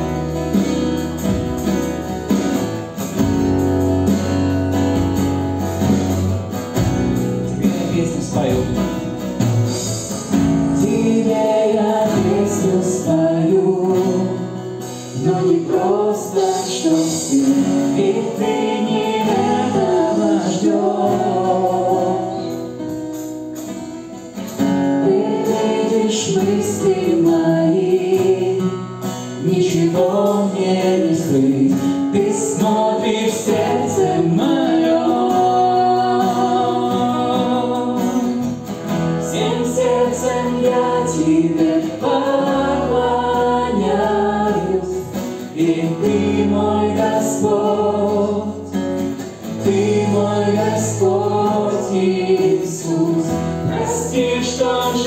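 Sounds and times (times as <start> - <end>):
drums: 0.0 - 55.0
electric guitar: 0.0 - 55.0
strummed acoustic guitar: 0.0 - 55.0
man singing lead vocal: 7.5 - 22.8, 25.0 - 38.6, 39.2 - 55.0.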